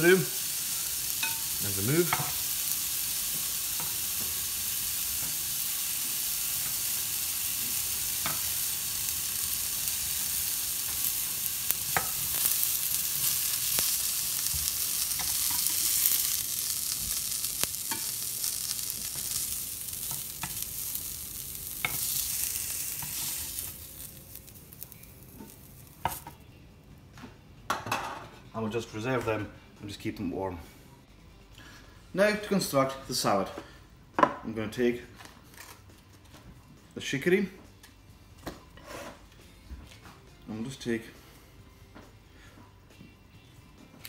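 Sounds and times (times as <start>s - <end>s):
vegetables sizzling in oil: 0.0s - 26.3s.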